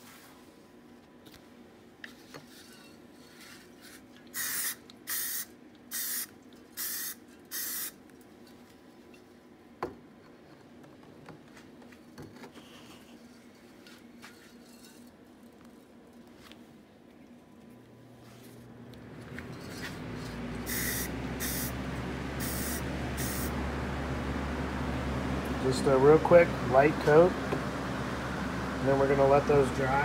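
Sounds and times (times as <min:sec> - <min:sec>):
background hum: 0:00.0 - 0:30.0
aerosol can spraying: 0:04.4 - 0:07.9, 0:20.7 - 0:21.8, 0:22.4 - 0:23.5.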